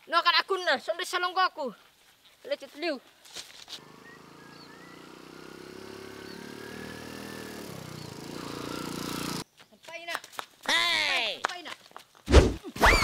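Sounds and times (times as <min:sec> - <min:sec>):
motorcycle engine running: 0:03.8 - 0:09.4.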